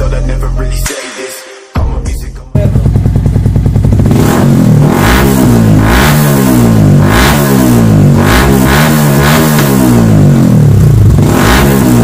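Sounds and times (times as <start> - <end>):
motorcycle engine revving: 2.6 - 12.0.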